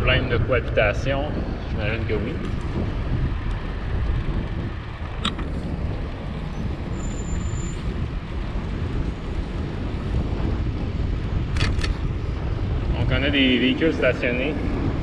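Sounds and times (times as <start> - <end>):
bicycle road rumble: 0.0 - 15.0
wind buffeting microphone: 0.0 - 15.0
faint high squeak: 6.9 - 7.8.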